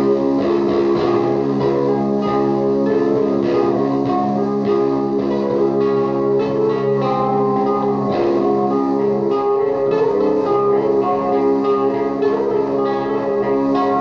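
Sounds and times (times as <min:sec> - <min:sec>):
electric guitar notes ringing: 0:00.0 - 0:14.0
looped guitar layer: 0:00.0 - 0:14.0.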